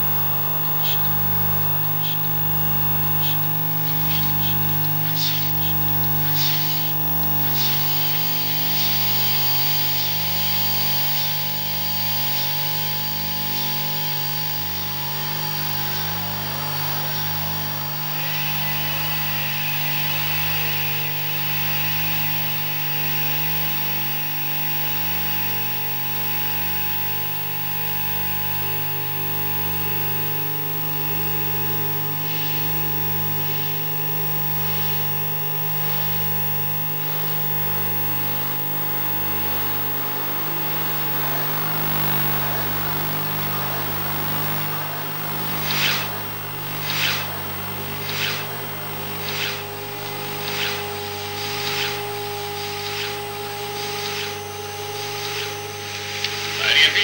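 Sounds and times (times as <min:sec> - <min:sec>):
low hum drone: 0:00.3 - 0:25.8, 0:41.2 - 0:57.0
soft electronic pulses: 0:00.4 - 0:25.6, 0:42.0 - 0:57.0
hiss: 0:03.2 - 0:12.5, 0:45.5 - 0:57.0.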